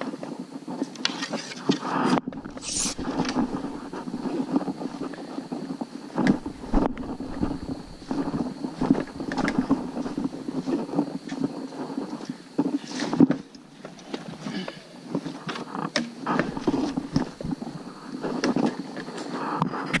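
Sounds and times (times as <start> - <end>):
footsteps on muddy trail: 2.1 - 19.3.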